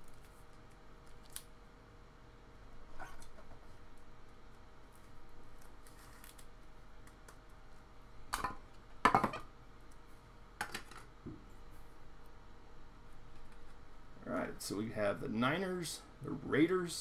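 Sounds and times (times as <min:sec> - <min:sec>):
plastic sleeve rustling and scraping: 0:04.9 - 0:06.5.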